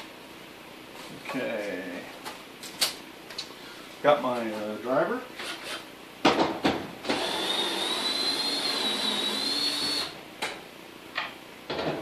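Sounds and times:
drill motor whining: 0:07.1 - 0:10.2.

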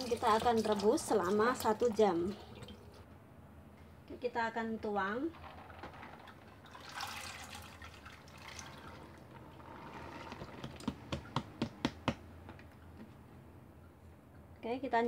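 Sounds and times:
beans pouring into water: 0:05.3 - 0:09.5.

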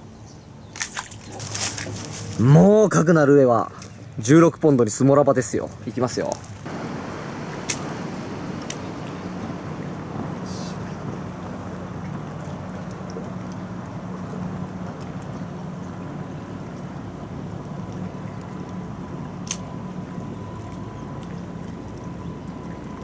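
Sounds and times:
outdoor background hiss: 0:00.0 - 0:14.8
steady low hum: 0:05.7 - 0:23.0.

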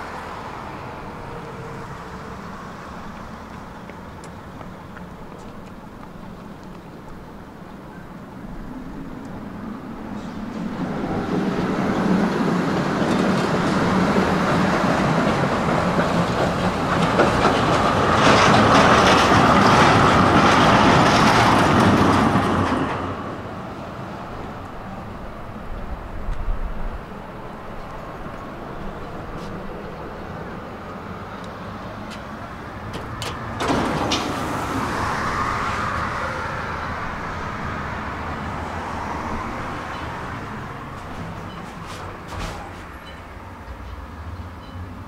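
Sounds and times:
tram wheels rumbling on rails: 0:00.0 - 0:45.0.

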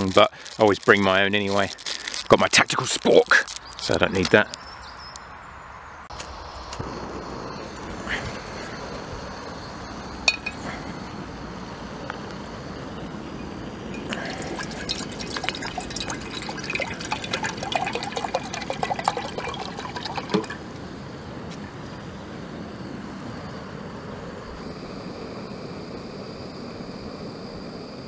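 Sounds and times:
water pouring and splashing: 0:14.0 - 0:20.6.

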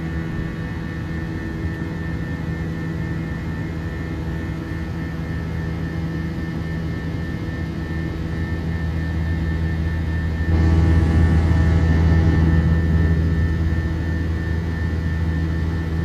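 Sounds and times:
jet engines droning in cabin: 0:00.0 - 0:16.0
low steady hum: 0:06.6 - 0:16.0.

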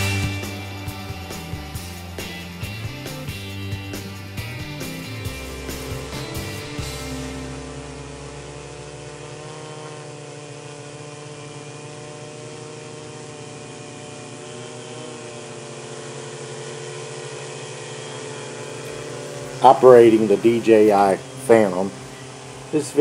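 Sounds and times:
quadcopter drone buzzing: 0:00.0 - 0:23.0.

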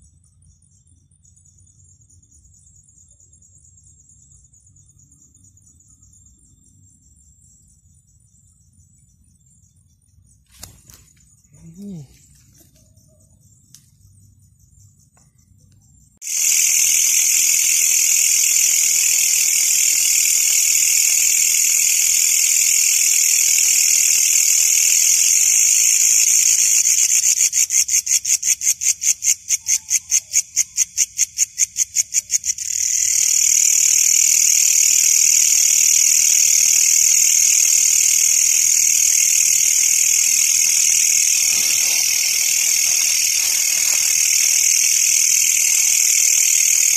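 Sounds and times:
katydid buzzing: 0:16.2 - 0:29.6, 0:30.8 - 0:46.9.

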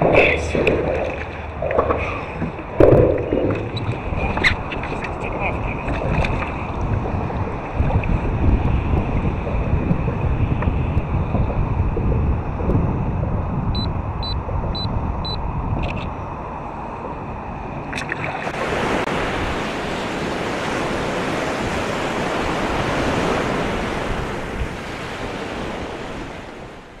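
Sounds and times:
wind rumble on microphone: 0:00.0 - 0:27.0
surf washing onto a beach: 0:17.9 - 0:27.0.

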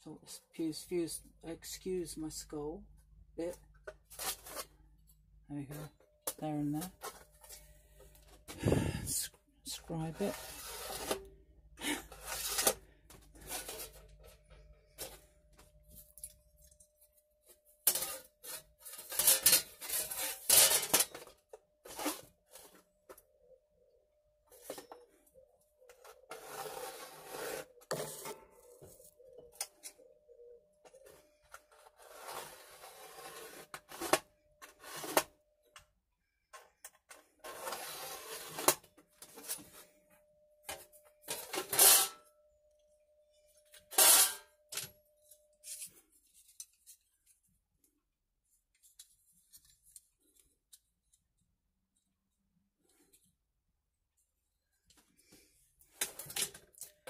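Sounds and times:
screw point scratching aluminium: 0:26.3 - 0:28.3.

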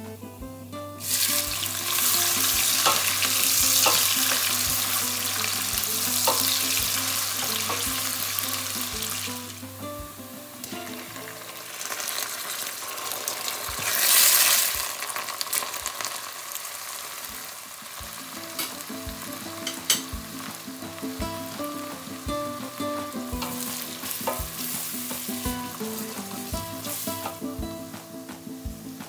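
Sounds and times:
onions sizzling in oil: 0:00.7 - 0:29.0.

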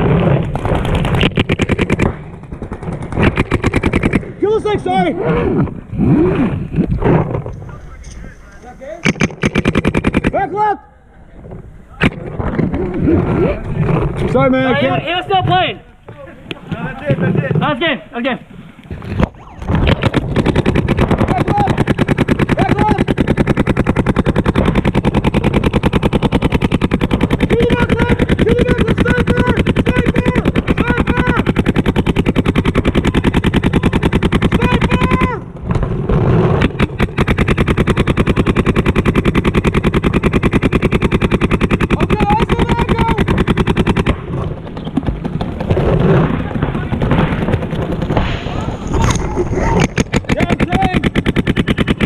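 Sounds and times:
paintball marker firing: 0:00.0 - 0:04.4, 0:06.8 - 0:10.4, 0:18.8 - 0:52.0.

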